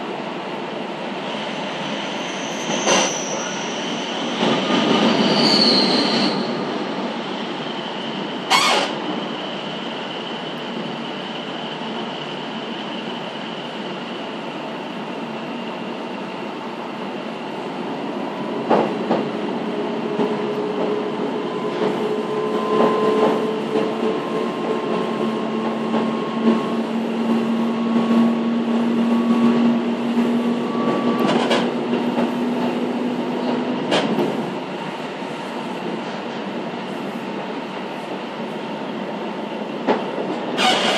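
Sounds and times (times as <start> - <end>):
train wheels rumbling on rails: 0.0 - 40.9
clacks over rail joints: 18.6 - 19.3, 30.8 - 32.7, 33.4 - 34.4.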